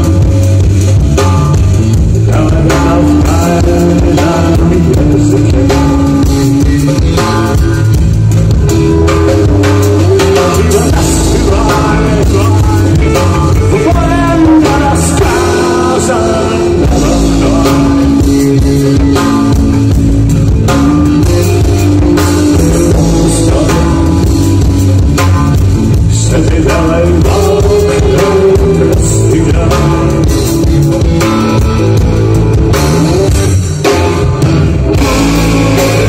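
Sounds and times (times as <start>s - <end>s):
man singing: 0.0s - 8.2s, 9.3s - 19.9s, 21.0s - 25.0s, 25.8s - 31.3s
bass guitar: 0.0s - 36.0s
drum kit: 0.0s - 36.0s
electric guitar: 0.0s - 36.0s.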